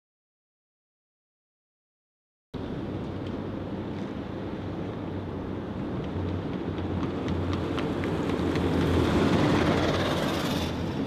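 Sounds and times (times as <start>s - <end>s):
armoured vehicle engine driving past: 6.1s - 11.0s.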